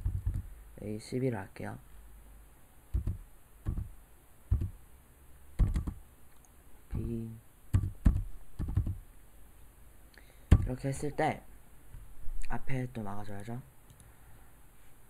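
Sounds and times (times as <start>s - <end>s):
computer keyboard keys clacking: 0.0s - 0.4s, 3.0s - 3.9s, 4.5s - 4.8s, 5.6s - 6.0s, 7.8s - 9.0s.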